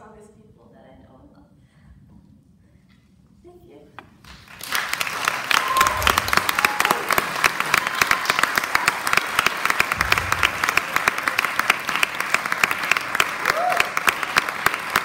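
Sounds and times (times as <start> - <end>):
audience applauding: 4.2 - 15.0.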